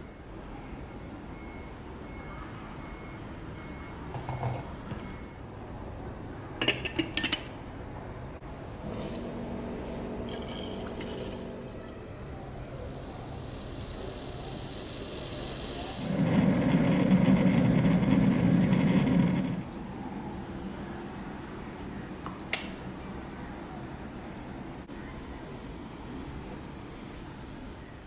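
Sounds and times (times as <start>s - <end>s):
low hum: 8.4s - 27.6s.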